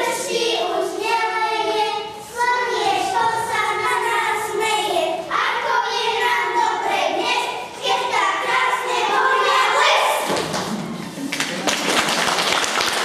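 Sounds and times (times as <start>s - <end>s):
children singing: 0.0s - 10.4s.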